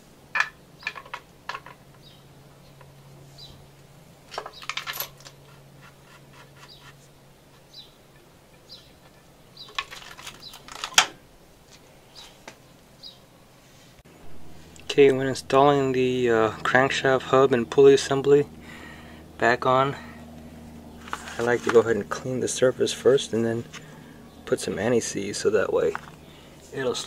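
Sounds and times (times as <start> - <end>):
metal parts and tools clinking: 0.4 - 1.9, 4.3 - 5.6, 8.2 - 11.1.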